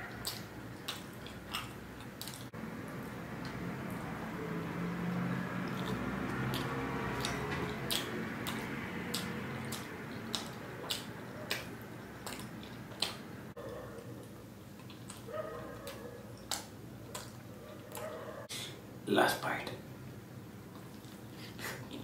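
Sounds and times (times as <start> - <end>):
wet mouth chewing clicks: 0.2 - 2.5, 5.6 - 13.3, 15.9 - 18.0.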